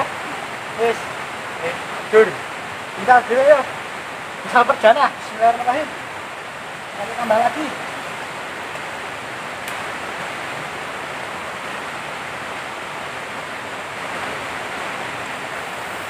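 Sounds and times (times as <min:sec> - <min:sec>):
river water flowing: 0:00.0 - 0:16.0.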